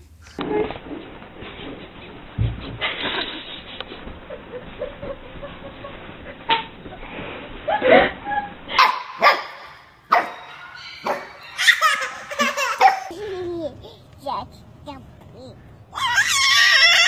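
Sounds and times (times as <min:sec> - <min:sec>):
puppy yapping: 0:08.8 - 0:11.9
baby laughing: 0:11.3 - 0:17.0.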